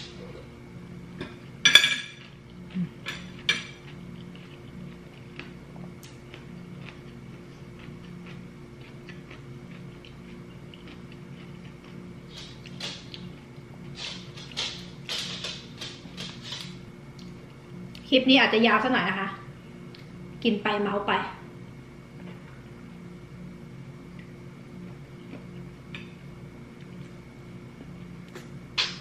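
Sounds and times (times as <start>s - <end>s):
cutlery clinking on a plate: 1.2s - 2.2s
small clicks of eating: 7.8s - 18.1s.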